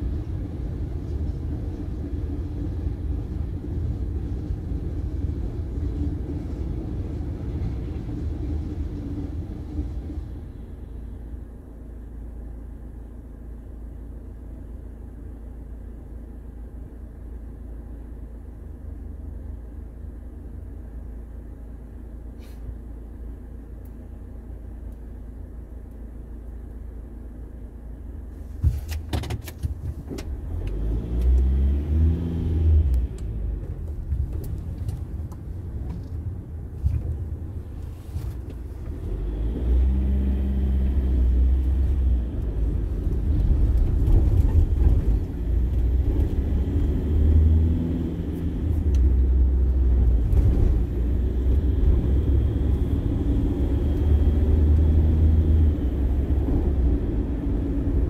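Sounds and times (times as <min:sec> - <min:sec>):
road rumble: 0:00.0 - 0:58.0
car engine revving through gears: 0:30.3 - 0:34.8, 0:38.8 - 0:58.0.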